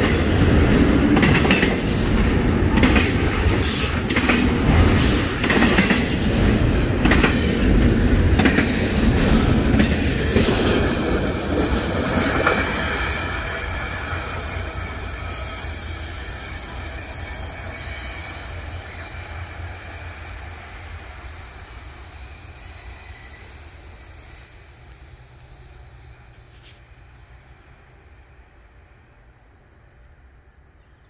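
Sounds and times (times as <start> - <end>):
freight train rumble: 0.0 - 31.0
train wheels squealing: 10.2 - 31.0.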